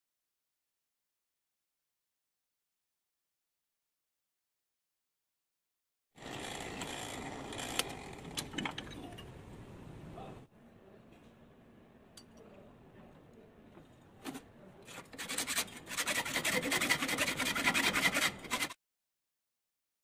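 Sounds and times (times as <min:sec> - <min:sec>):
file rasping on metal: 0:14.9 - 0:18.8.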